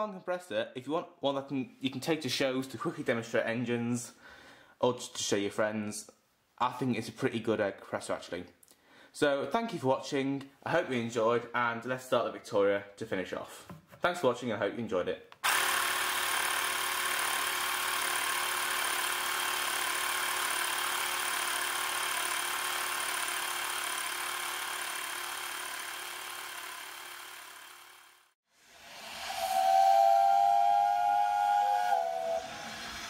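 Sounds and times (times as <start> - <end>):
air compressor whining: 15.4 - 28.3
two-note whistle: 29.3 - 33.0.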